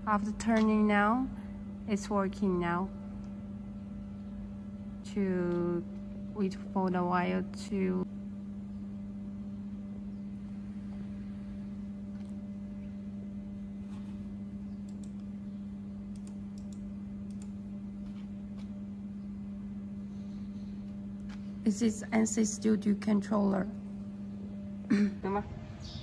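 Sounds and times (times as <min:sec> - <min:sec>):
electrical hum: 0:00.0 - 0:26.0
faint computer mouse clicks: 0:14.8 - 0:15.3.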